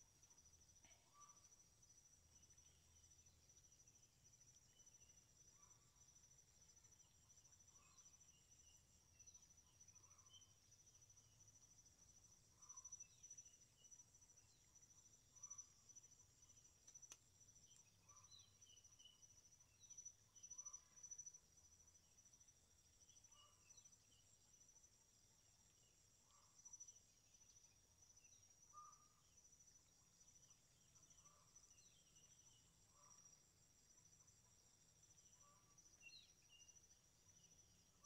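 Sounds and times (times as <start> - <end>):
click: 16.8 - 17.9.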